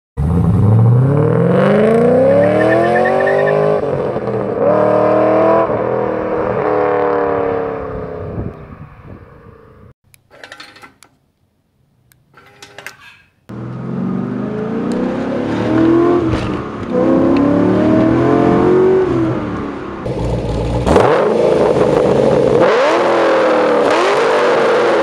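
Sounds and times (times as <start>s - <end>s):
car engine accelerating hard: 0.2s - 8.4s, 13.5s - 25.0s.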